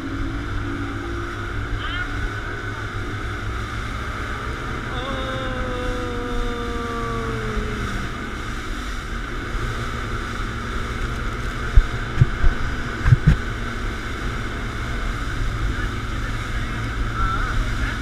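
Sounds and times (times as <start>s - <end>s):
boat outboard engines running: 0.0s - 18.0s
wind buffeting microphone: 7.4s - 16.9s
knocks on camera: 11.8s - 13.4s.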